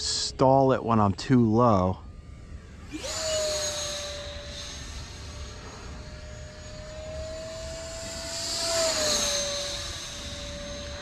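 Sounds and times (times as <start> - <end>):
model jet motor whine: 0.0 - 11.0.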